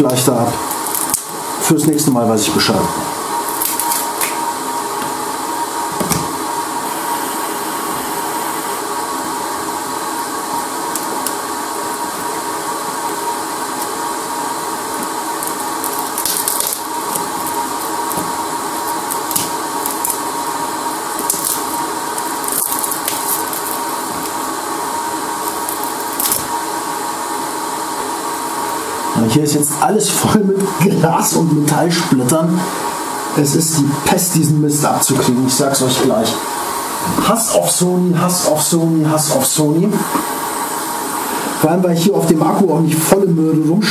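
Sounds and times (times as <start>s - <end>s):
hot-air blower hissing: 0.0s - 43.9s.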